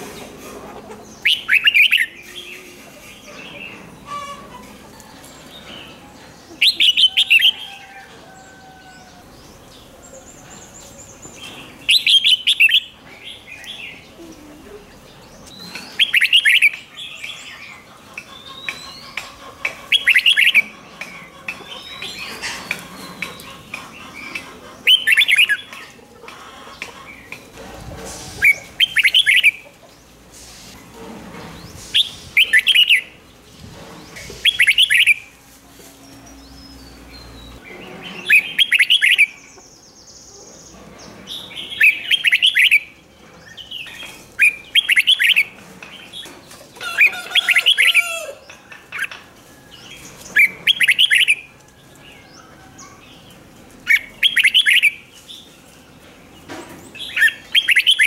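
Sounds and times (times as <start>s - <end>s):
bird singing warbled phrases: 1.1s - 4.5s, 10.7s - 26.0s, 28.4s - 29.7s, 32.0s - 33.2s, 34.2s - 35.3s, 36.7s - 40.8s, 41.4s - 43.0s, 43.6s - 46.4s, 50.3s - 51.5s, 53.8s - 55.5s, 56.9s - 58.0s
background hiss: 27.9s - 31.0s.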